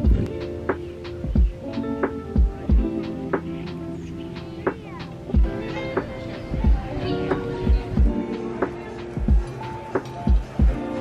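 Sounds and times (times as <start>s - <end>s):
deep kick drum: 0.0s - 0.3s, 1.2s - 1.6s, 2.4s - 2.9s, 5.4s - 5.6s, 7.7s - 8.2s, 9.2s - 9.5s, 10.3s - 10.8s
background music with plucked notes: 0.0s - 11.0s.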